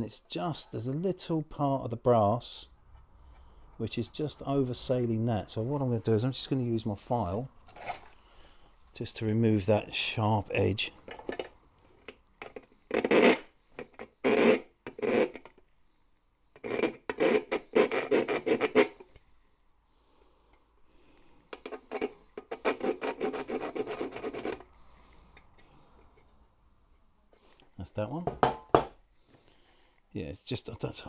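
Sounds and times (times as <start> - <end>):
hand file rasping on metal: 16.6 - 19.0, 21.6 - 24.7.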